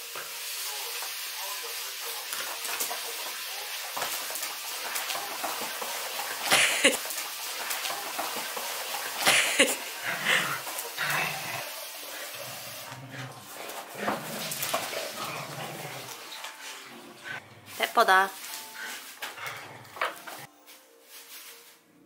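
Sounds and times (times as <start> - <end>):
dogs scuffling on a rug: 3.9 - 21.9
rustling bursts: 17.7 - 22.0.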